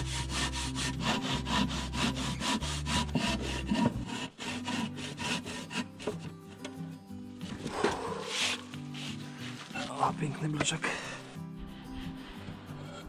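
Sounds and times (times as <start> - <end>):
hand saw cutting concrete block: 0.0 - 6.5, 7.7 - 10.0.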